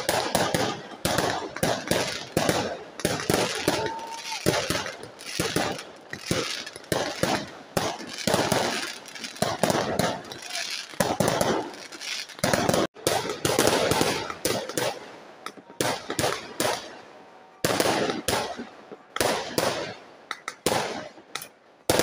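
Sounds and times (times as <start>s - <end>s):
firework shells bursting: 0.0s - 16.9s.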